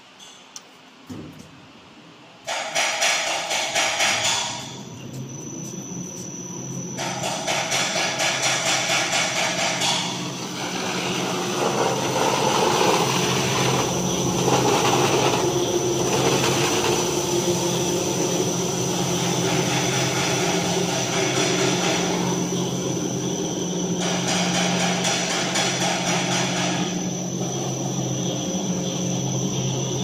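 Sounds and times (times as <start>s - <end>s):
high machine whine: 2.2s - 30.0s
sanding machine humming: 10.2s - 24.2s.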